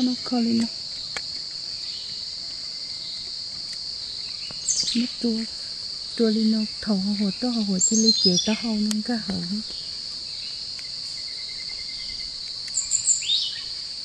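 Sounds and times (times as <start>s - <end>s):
woman speaking: 0.0s - 0.7s, 4.8s - 5.5s, 6.2s - 9.6s
insects droning: 0.0s - 14.0s.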